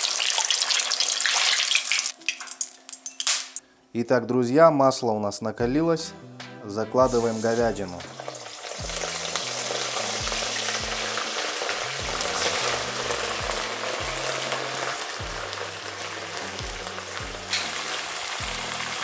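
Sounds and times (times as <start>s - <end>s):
meat sizzling in hot oil: 0.0s - 3.5s, 7.1s - 19.0s
meat dropping into oil: 0.2s - 3.6s
background music with beat: 5.6s - 19.0s.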